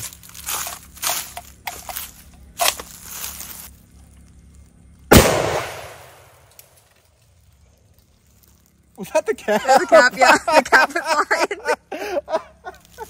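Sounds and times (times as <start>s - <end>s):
rifle shot with echo: 5.1s - 6.5s.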